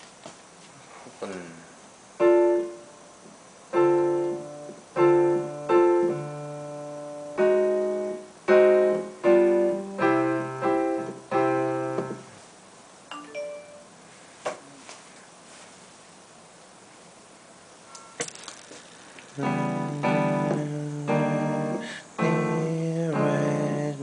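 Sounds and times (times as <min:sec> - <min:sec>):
piano chords: 0:02.2 - 0:03.0, 0:03.7 - 0:12.4, 0:13.1 - 0:14.0, 0:19.3 - 0:24.0.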